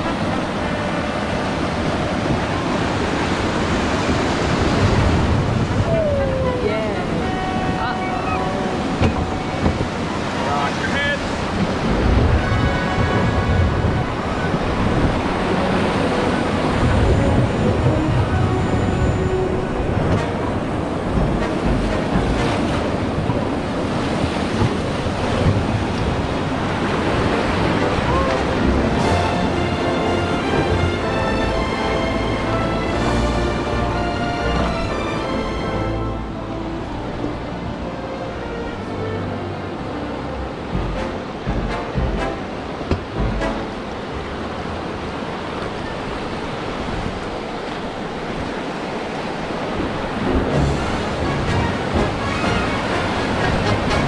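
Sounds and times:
wind buffeting microphone: 0.0s - 31.0s
whitewater rushing and splashing: 0.0s - 54.0s.

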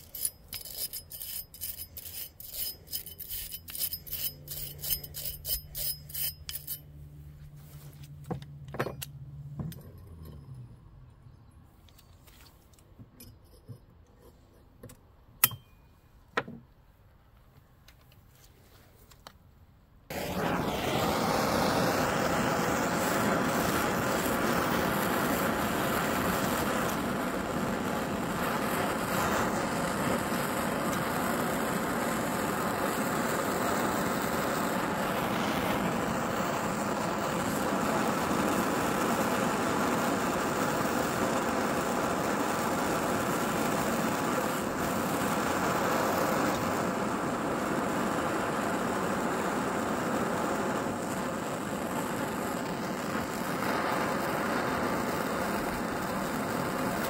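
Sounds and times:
gas torch flame hissing: 20.1s - 57.0s.

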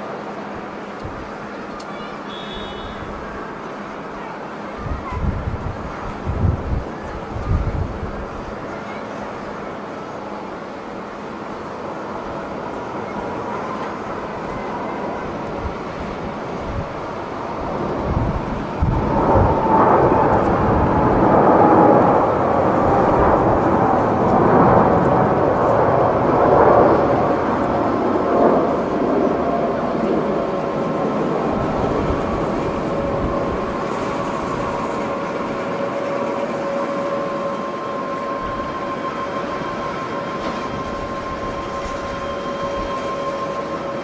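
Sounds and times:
high fan tones: 0.0s - 44.0s
jet engines roaring at takeoff: 0.0s - 44.0s.

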